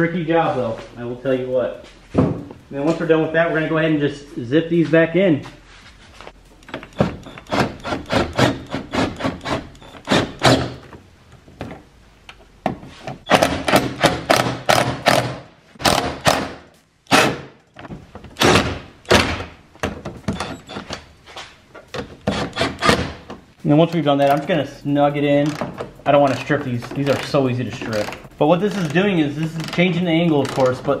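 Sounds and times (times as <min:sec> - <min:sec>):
hand ratchet clicking: 0:25.4 - 0:30.8.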